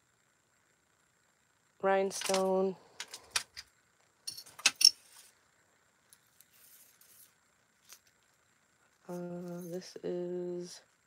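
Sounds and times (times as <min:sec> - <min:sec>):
metal jewelry clinking: 0:04.3 - 0:05.1
faint rustling: 0:05.0 - 0:09.9.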